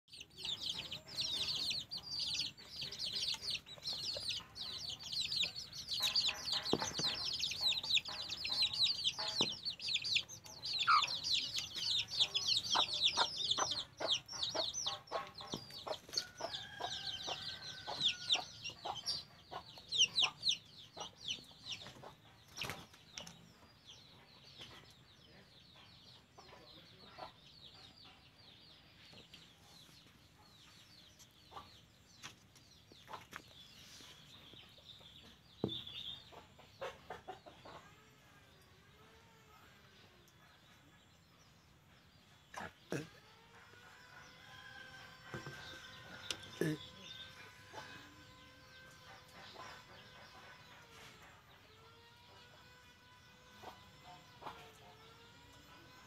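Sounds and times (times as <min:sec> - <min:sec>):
hen clucking: 0:00.1 - 0:23.3, 0:34.5 - 0:38.0, 0:42.4 - 0:52.7
chicks peeping: 0:00.1 - 0:56.0.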